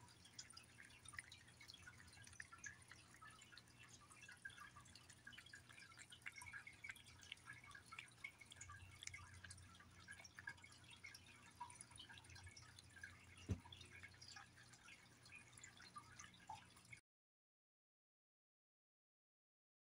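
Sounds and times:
cat chewing and lapping food: 0.0s - 17.0s
thump: 13.5s - 13.7s.

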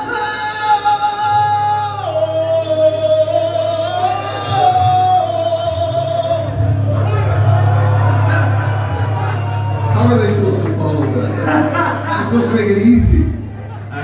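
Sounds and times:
man singing long notes: 0.0s - 8.1s.

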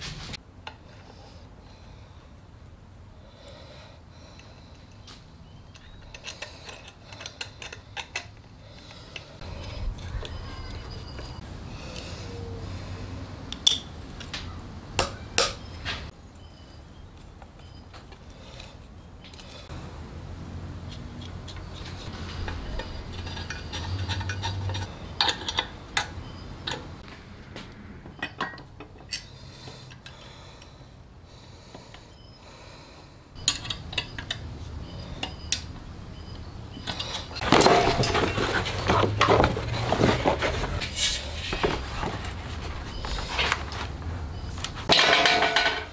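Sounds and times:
small metal parts clinking: 5.7s - 11.4s, 20.9s - 26.9s, 33.4s - 35.8s, 36.8s - 40.9s, 44.9s - 45.9s.

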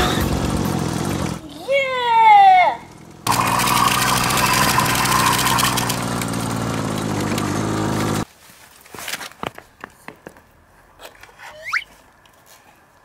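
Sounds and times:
engine running: 0.0s - 1.6s, 2.6s - 8.2s.

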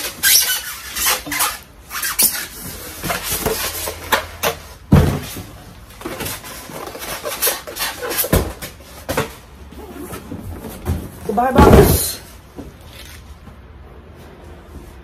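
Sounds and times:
packaging rustling and scraping: 0.0s - 11.2s.

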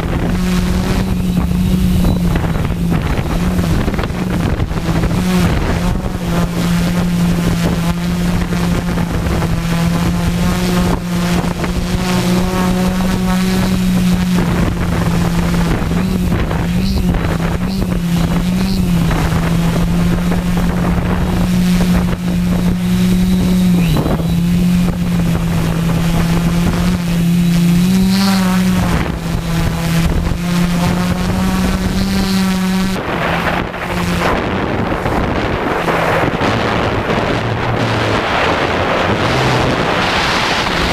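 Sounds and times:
drone propellers buzzing: 0.0s - 40.9s
wind noise on microphone: 0.0s - 40.9s.

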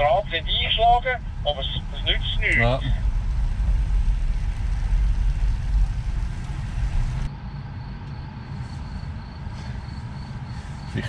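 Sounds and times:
car cabin hum: 0.0s - 7.3s
road and tyre rumble: 0.0s - 11.0s.

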